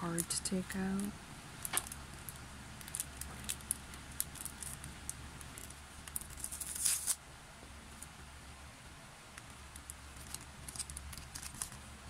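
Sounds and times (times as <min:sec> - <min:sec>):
plastic packaging crinkling: 0:01.0 - 0:07.2, 0:09.4 - 0:11.9.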